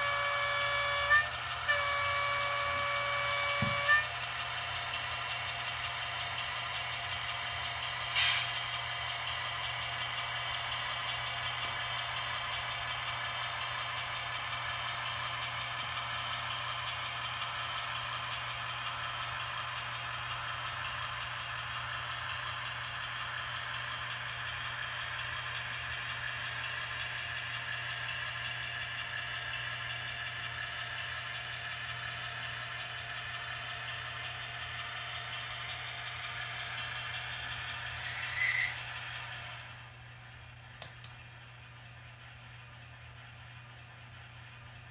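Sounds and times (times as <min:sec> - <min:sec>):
model diesel engine sound from small speaker: 0:00.0 - 0:44.9.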